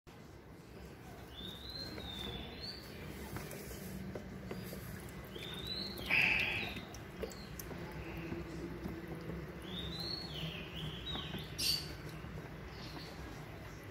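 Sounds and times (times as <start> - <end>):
water sloshing in a tub: 0.9 - 13.9
bird chirping: 5.2 - 13.4.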